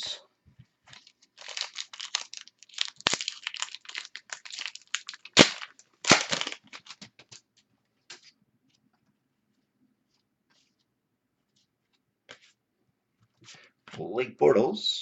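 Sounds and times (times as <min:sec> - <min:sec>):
wrapper crinkling and tearing: 0:00.9 - 0:07.4.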